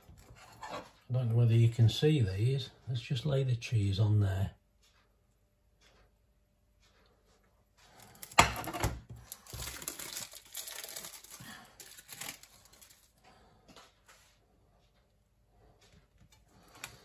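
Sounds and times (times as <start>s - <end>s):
plastic packaging crinkling: 9.2s - 13.2s.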